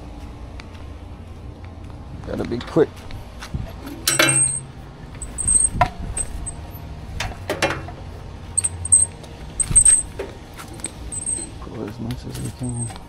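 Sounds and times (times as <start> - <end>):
metallic clinks and knocks: 3.9 - 7.9, 8.6 - 11.6
short high squeaks: 4.1 - 6.8, 8.6 - 11.6, 12.6 - 13.0.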